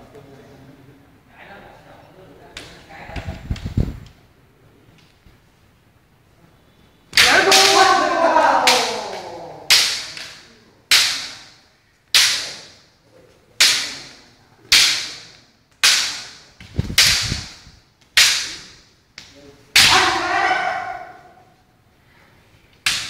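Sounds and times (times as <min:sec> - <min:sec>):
person shouting: 0:07.2 - 0:09.9, 0:19.8 - 0:21.5
bamboo sword striking armour: 0:08.6 - 0:11.5, 0:12.1 - 0:12.8, 0:13.6 - 0:17.6, 0:18.2 - 0:18.8, 0:19.8 - 0:20.4.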